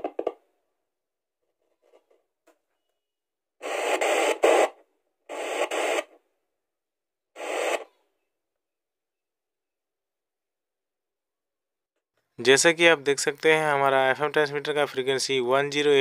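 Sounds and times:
radio static hissing: 3.6s - 4.7s, 5.3s - 6.1s, 7.4s - 7.9s.

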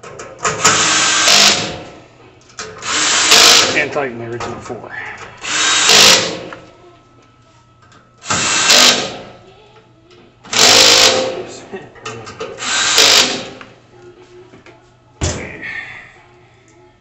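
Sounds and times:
power drill driving screws: 0.6s - 1.8s, 2.8s - 3.8s, 5.4s - 6.5s, 8.2s - 9.2s, 10.5s - 11.4s, 12.6s - 13.6s.

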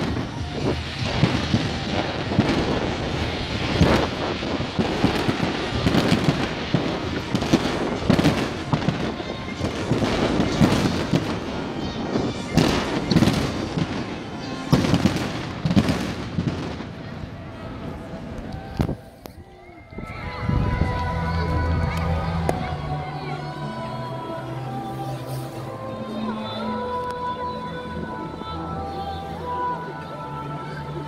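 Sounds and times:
fireworks bangs: 0.0s - 23.4s
fireworks crackling: 0.0s - 27.3s.

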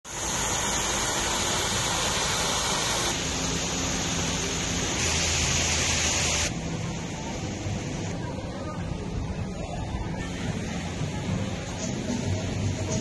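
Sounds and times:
waterfall splashing into pool: 0.1s - 6.5s.

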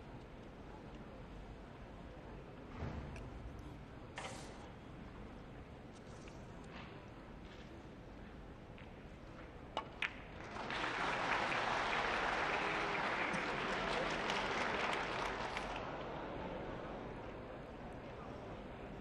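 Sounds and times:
audience applause: 10.4s - 16.4s.

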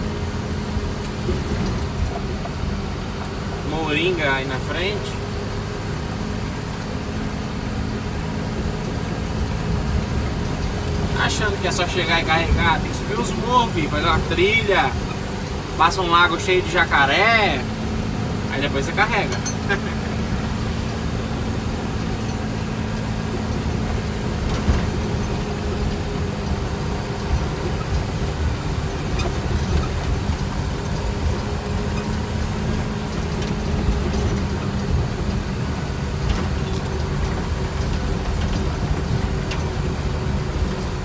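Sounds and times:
truck diesel engine running: 0.0s - 41.0s
knocks and rattles from bumps: 18.9s - 41.0s.

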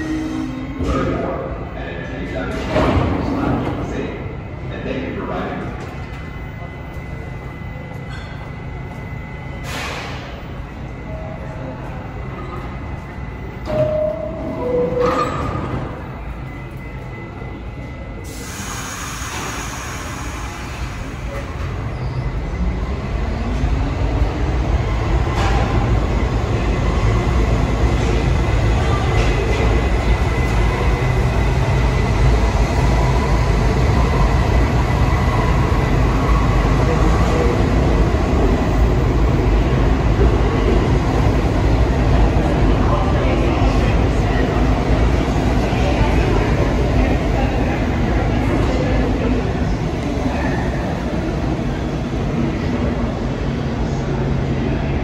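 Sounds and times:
train wheels rumbling on track: 0.0s - 55.0s
two-note chime: 13.7s - 15.2s.

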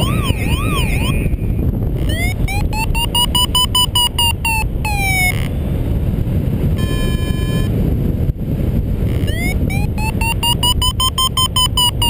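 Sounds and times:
steady electronic tone: 0.0s - 5.7s, 6.8s - 7.7s, 9.1s - 12.0s
variometer beeping: 0.0s - 5.7s, 6.8s - 7.8s, 9.1s - 12.0s
wind rushing on microphone: 0.0s - 12.0s.

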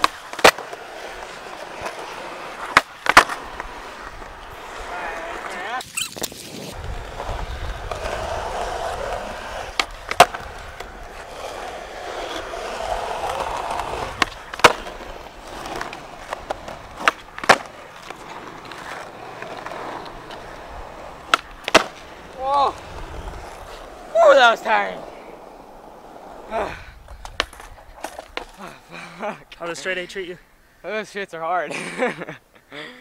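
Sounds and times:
skateboard clacks: 0.0s - 5.7s, 6.8s - 28.7s
skateboard wheels rolling on asphalt: 0.0s - 32.5s.

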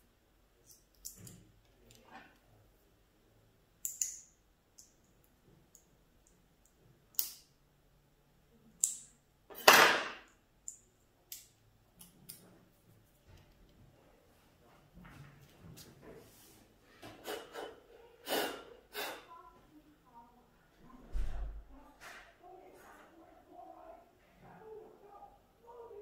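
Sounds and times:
small clicks of handled objects: 0.6s - 2.4s, 3.8s - 7.5s.

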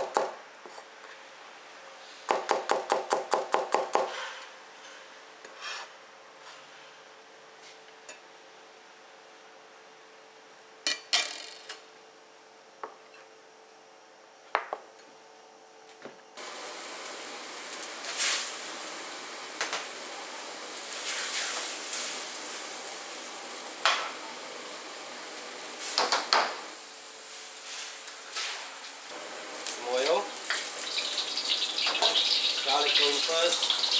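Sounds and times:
steady hiss: 16.4s - 33.9s.

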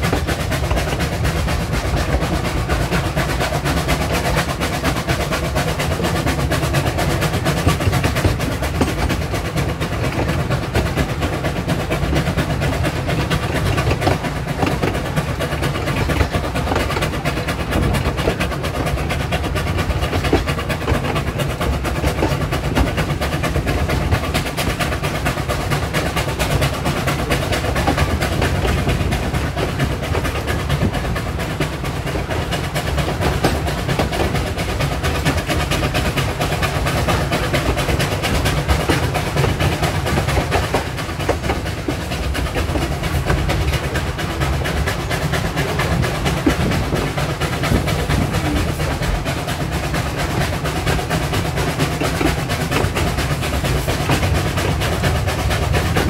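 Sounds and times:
steam locomotive exhaust: 0.0s - 56.0s
wheels clattering on rails: 0.0s - 56.0s.

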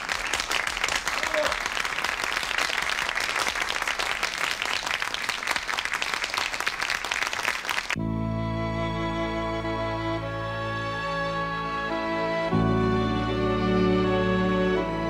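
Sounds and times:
audience applauding: 0.0s - 8.0s
slow sustained music: 8.0s - 15.0s.

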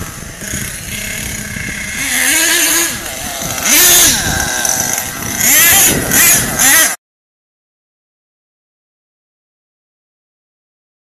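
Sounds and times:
small two-stroke engine revving: 0.0s - 7.0s.

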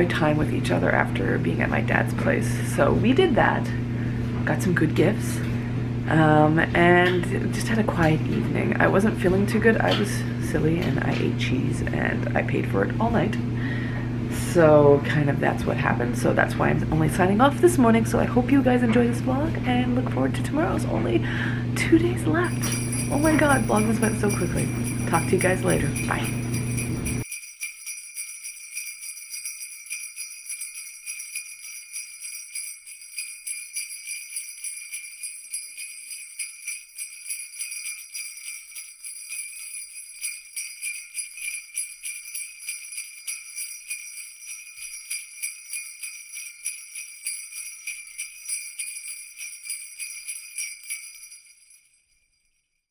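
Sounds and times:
jingle bells shaken: 22.4s - 52.9s.

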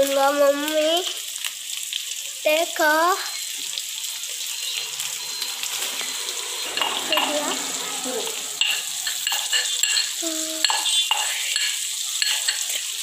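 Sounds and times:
chicken sizzling in a pan: 0.0s - 13.0s
spoon scraping a pan: 5.2s - 13.0s.

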